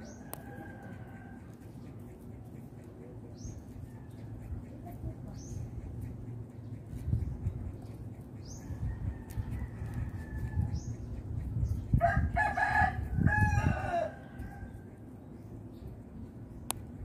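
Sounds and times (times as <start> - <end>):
rooster crowing: 0.0 - 1.5, 8.8 - 10.8, 12.0 - 14.8.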